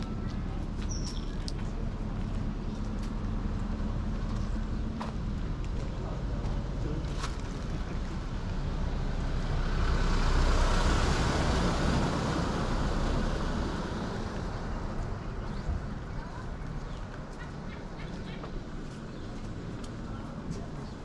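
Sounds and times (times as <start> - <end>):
car driving past: 8.6 - 15.8.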